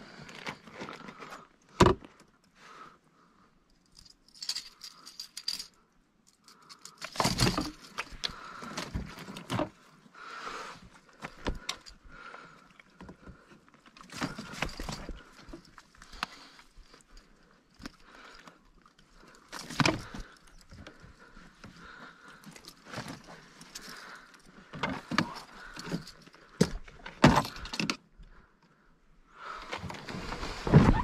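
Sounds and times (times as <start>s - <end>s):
metal clinks: 3.8s - 8.3s.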